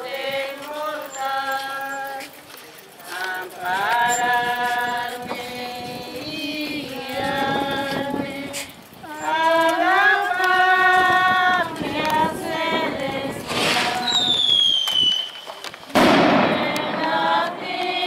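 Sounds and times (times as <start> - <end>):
voices singing slow song: 0.0 - 14.8, 16.2 - 18.0
short rushing noise: 13.4 - 17.1.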